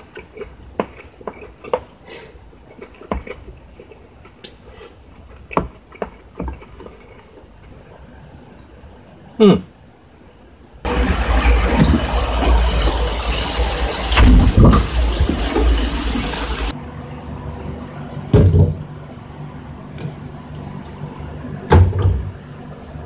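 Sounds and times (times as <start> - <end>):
food sizzling in a frying pan: 10.9 - 16.7.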